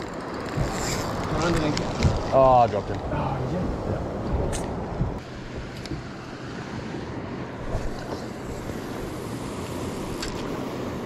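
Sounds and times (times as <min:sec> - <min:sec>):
wind buffeting microphone: 0:00.0 - 0:06.1
boat engine idling: 0:00.0 - 0:11.0.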